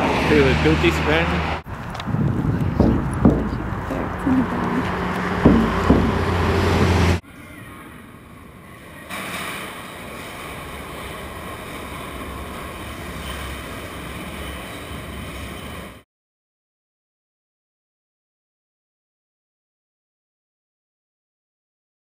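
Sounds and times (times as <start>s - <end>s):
underground train rumbling: 0.0s - 16.0s.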